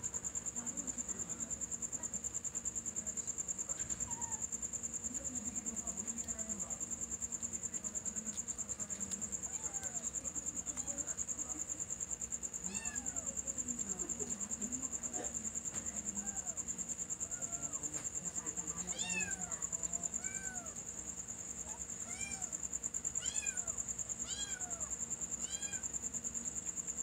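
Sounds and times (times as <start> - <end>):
insects trilling: 0.0 - 27.0
young cat meowing: 4.0 - 4.4, 12.7 - 13.3, 18.9 - 19.6, 20.2 - 20.8, 22.0 - 22.5, 23.2 - 25.8.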